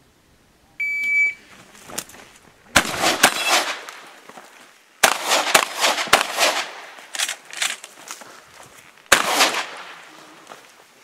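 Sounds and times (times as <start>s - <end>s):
shot timer beep: 0.8s - 1.4s
shotgun shots echoing: 2.7s - 4.1s, 5.0s - 7.3s, 9.1s - 10.1s.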